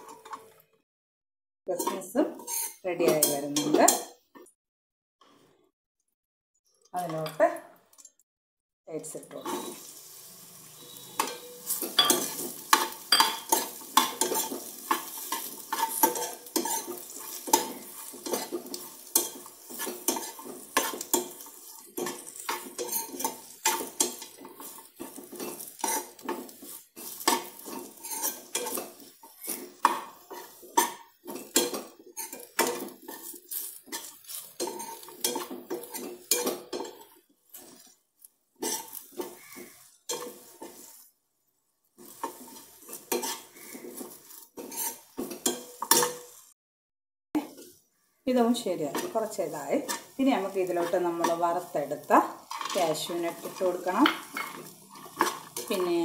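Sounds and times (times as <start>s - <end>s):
metal spoon scraping a pan: 1.7s - 4.2s, 9.3s - 38.0s, 38.6s - 41.1s, 42.0s - 46.4s, 48.4s - 56.0s
light sizzle: 8.9s - 46.6s, 47.4s - 56.0s.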